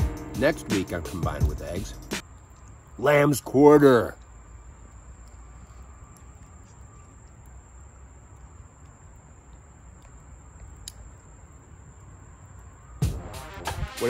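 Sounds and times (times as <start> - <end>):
thin high tone: 0.0 - 2.2
faint ticks: 4.2 - 13.0.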